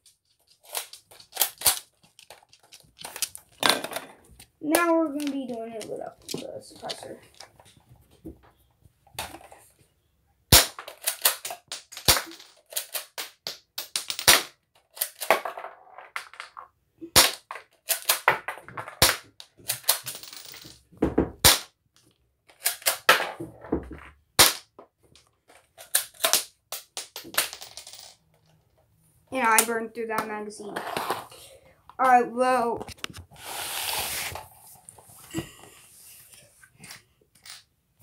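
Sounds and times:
plastic clicking and rattling: 0.0 - 7.8.

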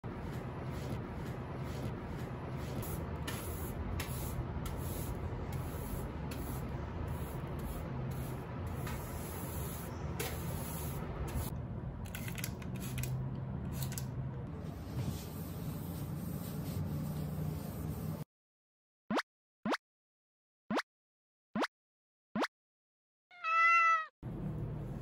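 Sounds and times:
hand brush sweeping desk: 0.1 - 11.5, 13.8 - 18.2.

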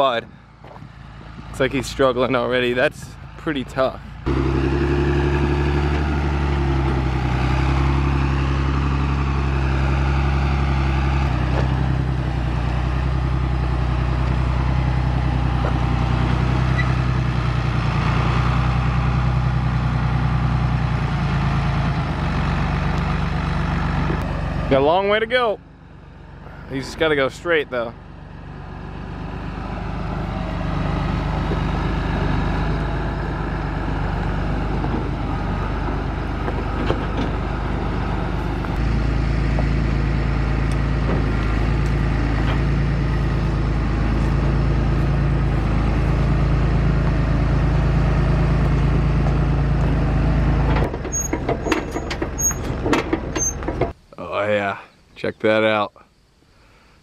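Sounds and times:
tractor diesel engine under load: 0.0 - 54.8.

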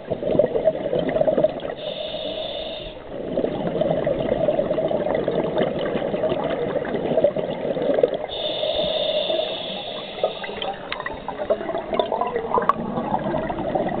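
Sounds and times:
crackling bubbles: 0.0 - 14.0
high hiss: 1.8 - 3.0, 8.3 - 11.4
scuba regulator breathing: 1.8 - 3.1, 8.3 - 11.7
gurgling exhaust bubbles: 3.2 - 8.4, 10.2 - 14.0.

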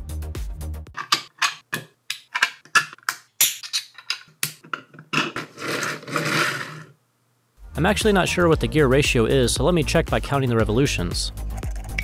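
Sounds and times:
plastic parts clicking together: 0.9 - 5.4.

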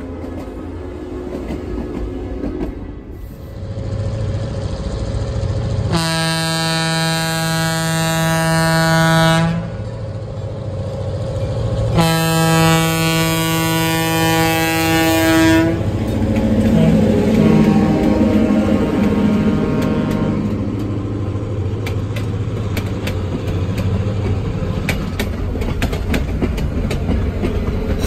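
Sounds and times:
diesel engine drone: 2.9 - 24.7
locomotive air horn blasts: 5.9 - 9.8, 11.9 - 15.9, 16.7 - 20.6.

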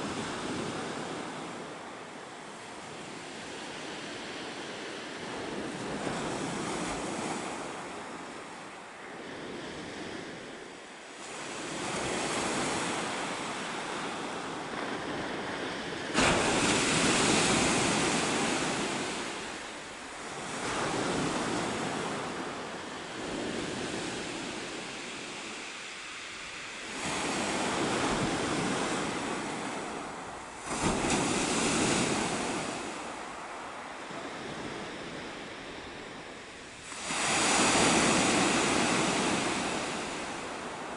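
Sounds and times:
waves breaking on shingle beach: 11.3 - 22.6, 26.8 - 34.7, 36.4 - 40.9.

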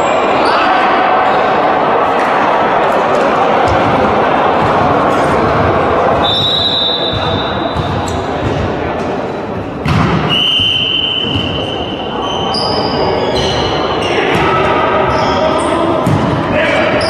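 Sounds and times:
players' voices: 0.0 - 17.0
ball hit: 9.8 - 10.3.

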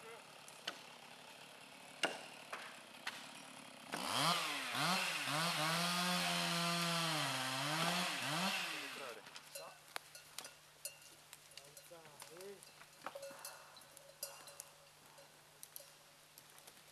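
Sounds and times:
chainsaw revving and cutting: 0.0 - 9.2.

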